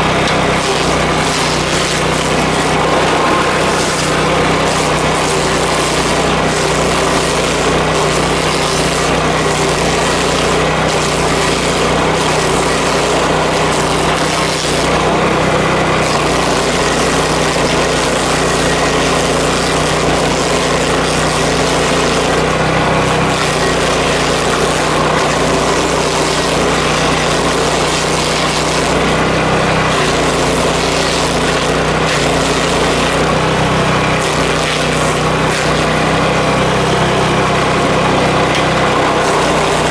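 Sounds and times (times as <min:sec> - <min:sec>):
stump grinder engine: 0:00.0 - 0:39.9
hiss of cutting: 0:00.8 - 0:08.2.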